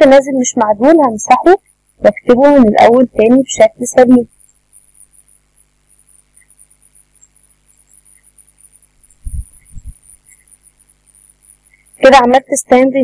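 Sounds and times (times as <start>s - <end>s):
high-pitched whine: 0.0s - 12.5s
faint hiss: 0.0s - 13.0s
soft low thuds: 9.1s - 10.1s.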